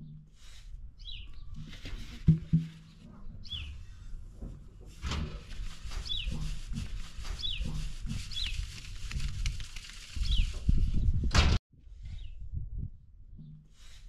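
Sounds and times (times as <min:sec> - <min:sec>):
low thumps and knocks: 0:01.5 - 0:08.3.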